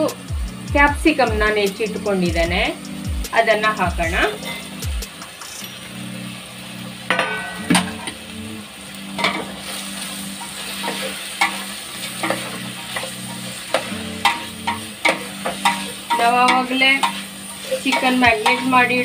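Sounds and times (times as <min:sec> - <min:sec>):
vegetables sizzling in oil: 0:00.0 - 0:19.0
ladle clinking and scraping pot: 0:09.2 - 0:09.5, 0:10.4 - 0:18.8.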